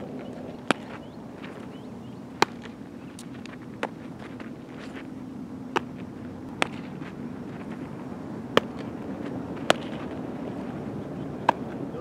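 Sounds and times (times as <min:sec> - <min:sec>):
balls smacking into leather gloves: 0:00.0 - 0:01.7, 0:02.4 - 0:05.0, 0:05.7 - 0:07.9, 0:08.5 - 0:10.6, 0:11.4 - 0:11.8
baseballs cracking off bats: 0:00.0 - 0:12.0
steady low hum: 0:00.0 - 0:12.0.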